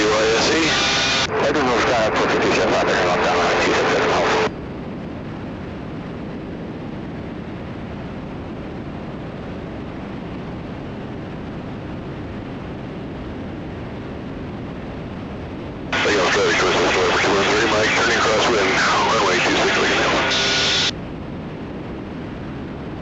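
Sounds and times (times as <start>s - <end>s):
aircraft cockpit engine hiss: 16.0s - 20.9s.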